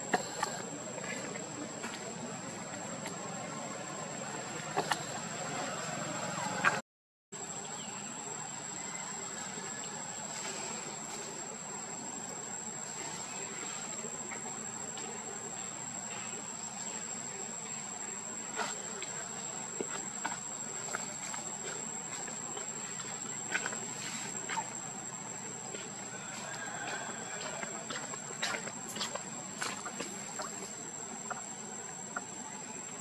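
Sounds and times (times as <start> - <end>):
high-pitched insect chorus: 7.4 - 33.0.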